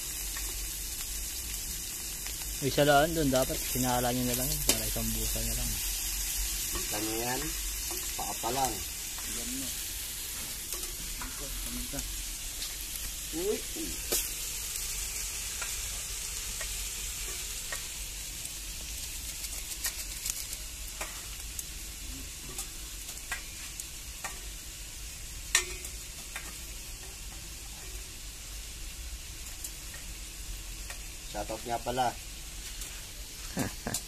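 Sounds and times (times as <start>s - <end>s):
food sizzling in a wok: 0.0s - 34.0s
sharp ticks and pops: 4.3s - 4.9s, 18.8s - 21.7s, 22.6s - 24.5s, 25.5s - 27.2s, 30.8s - 31.1s.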